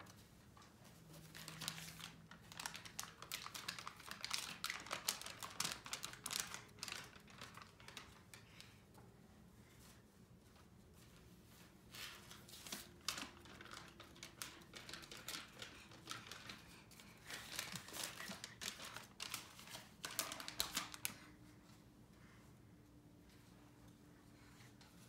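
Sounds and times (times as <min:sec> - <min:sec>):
paper rustling and crinkling: 0:00.0 - 0:08.7, 0:11.6 - 0:21.3.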